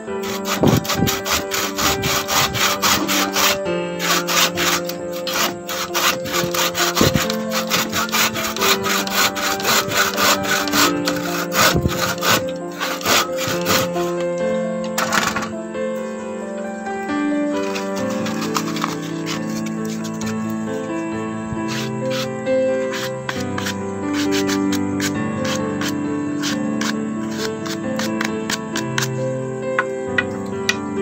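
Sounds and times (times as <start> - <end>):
background music with held notes: 0.0 - 31.0
hand saw cutting wood: 0.1 - 15.5, 17.6 - 29.2.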